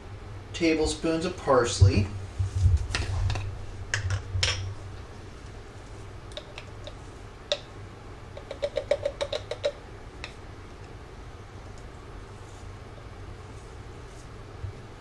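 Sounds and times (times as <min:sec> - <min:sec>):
spice jar tapping: 0:08.4 - 0:10.4.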